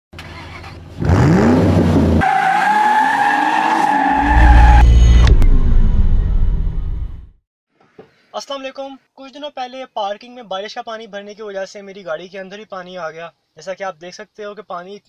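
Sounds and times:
car engine revving: 0:00.4 - 0:02.8.

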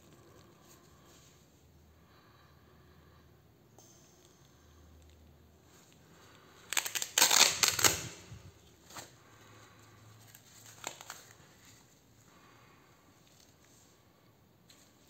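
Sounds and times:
velcro ripping open: 0:06.6 - 0:09.1, 0:10.3 - 0:11.5.

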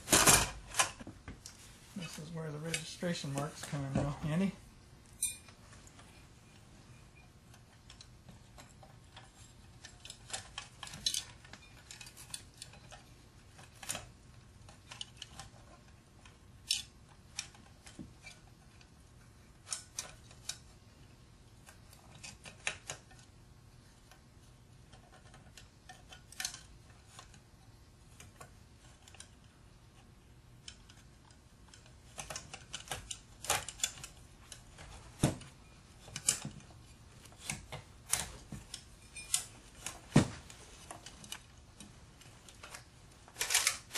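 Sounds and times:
faint steady hum: 0:00.0 - 0:43.9
light metallic clicks and clinks: 0:05.2 - 0:05.6.

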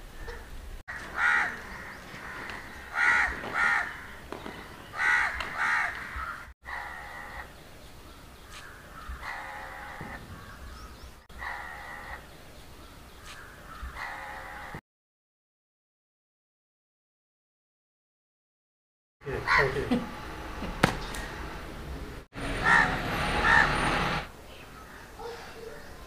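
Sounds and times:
crows cawing: 0:00.2 - 0:07.5, 0:08.5 - 0:12.3, 0:13.2 - 0:14.8, 0:19.3 - 0:19.9, 0:22.6 - 0:23.9, 0:24.7 - 0:25.6.

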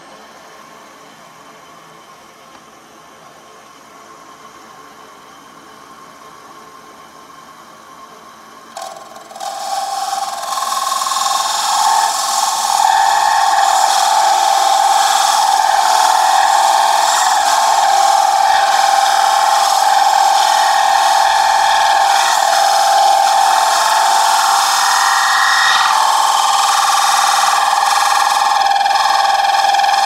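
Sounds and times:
lathe tool shrill tone: 0:08.8 - 0:30.0.

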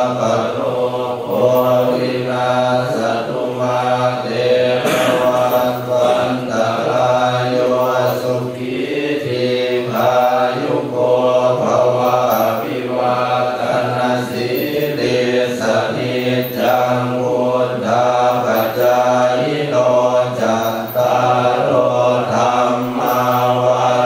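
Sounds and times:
group of voices chanting: 0:00.0 - 0:24.0.

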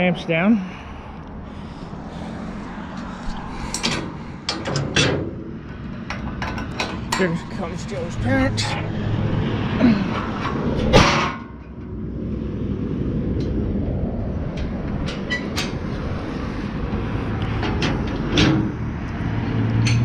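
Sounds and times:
steady low rumble: 0:00.0 - 0:20.0
metal ramp clanking: 0:03.6 - 0:07.7, 0:10.0 - 0:11.7, 0:17.6 - 0:18.8
metal knocks and rattles: 0:03.6 - 0:08.0.

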